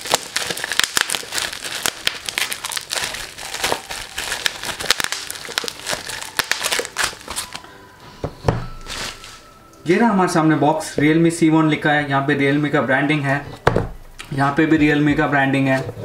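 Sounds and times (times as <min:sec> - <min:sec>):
bubble wrap crinkling: 0:00.0 - 0:07.7, 0:08.7 - 0:09.6.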